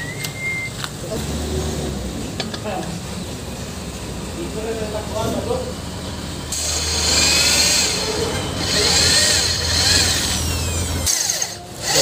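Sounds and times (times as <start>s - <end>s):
electric drill boring: 6.5s - 12.0s.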